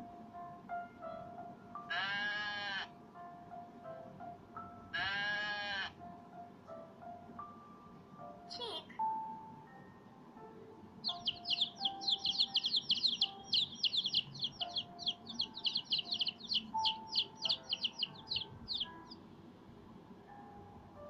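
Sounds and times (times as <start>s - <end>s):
baby chicks peeping: 11.0s - 19.2s.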